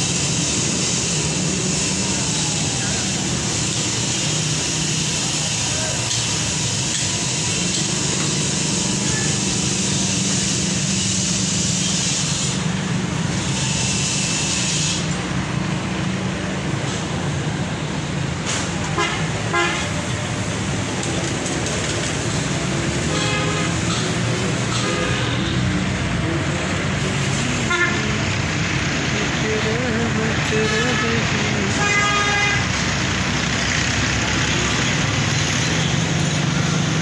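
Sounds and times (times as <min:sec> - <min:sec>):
engine hum: 0:00.0 - 0:37.0
horn toots: 0:18.9 - 0:20.0, 0:23.0 - 0:24.1, 0:24.7 - 0:25.6, 0:27.6 - 0:28.2, 0:30.8 - 0:32.7.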